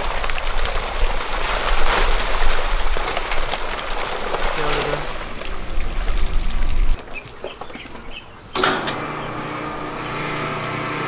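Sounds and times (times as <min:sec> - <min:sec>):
bird chirps: 0:05.7 - 0:10.9
truck engine running: 0:08.5 - 0:11.0.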